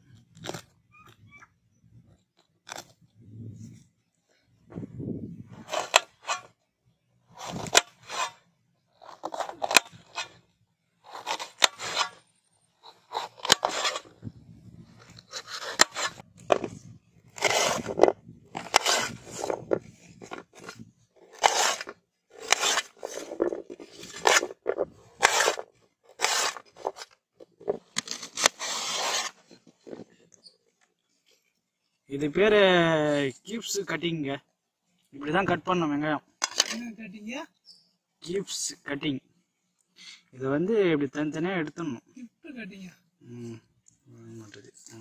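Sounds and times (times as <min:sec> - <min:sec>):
knife cutting crunchy pepper: 0:09.0 - 0:10.3, 0:11.1 - 0:12.2, 0:17.3 - 0:30.1.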